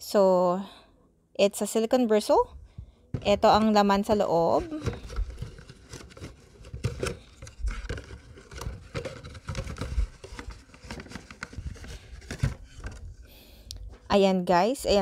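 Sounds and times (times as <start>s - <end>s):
cardboard flaps rustling: 3.1s - 13.3s.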